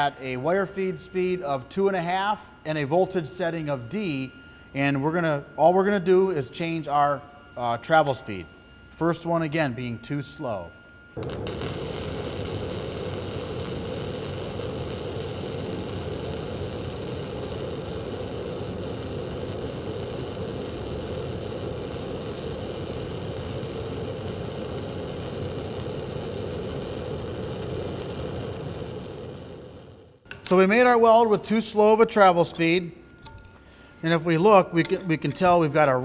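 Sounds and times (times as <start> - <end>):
welding arc burning: 11.2 - 31.3.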